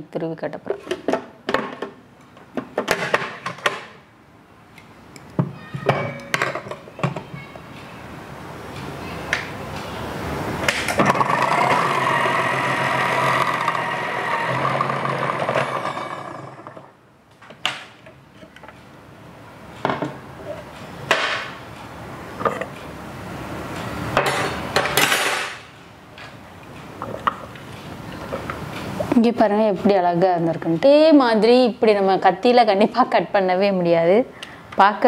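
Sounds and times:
food processor motor whining: 11.0 - 16.9.

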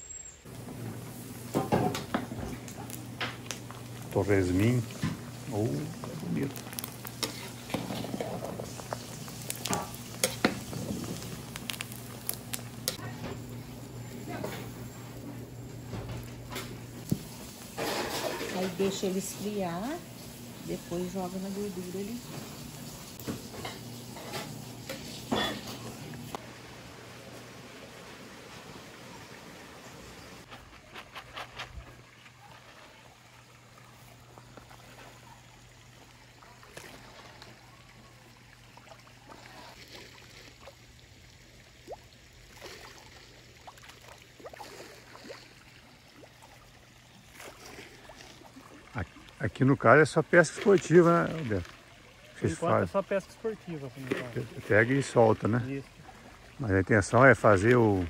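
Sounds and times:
pork rinds sizzling in lard: 0.4 - 32.3, 33.2 - 58.0
faint water trickle: 2.3 - 7.6, 31.8 - 58.0
small splashes in a pond: 26.4 - 58.0.

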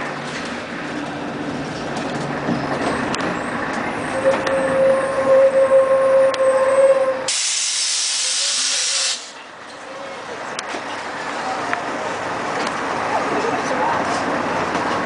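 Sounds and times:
bus rear axle whine: 0.0 - 9.8
air brakes hissing: 7.2 - 9.4.

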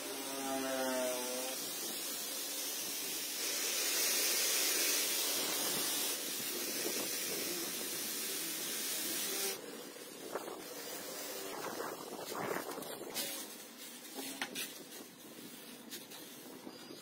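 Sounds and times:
toy truck motor whirring: 0.0 - 13.5.

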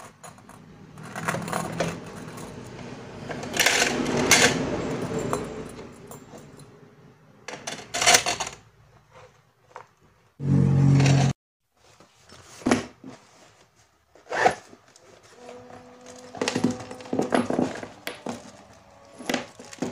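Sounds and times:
short low buzz: 10.4 - 11.4
metal binder rings clicking: 16.0 - 19.9.

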